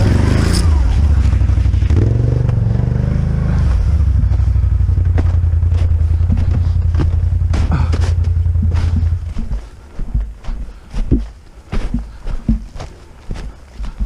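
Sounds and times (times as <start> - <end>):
atv engine running under load: 0.0 - 10.3
knocks over rocks and branches: 5.0 - 10.3.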